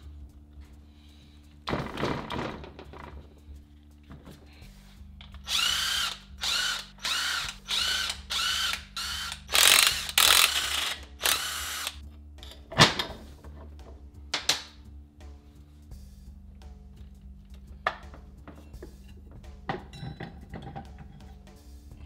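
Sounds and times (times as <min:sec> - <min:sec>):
cordless power tool whirring: 0:05.4 - 0:12.0.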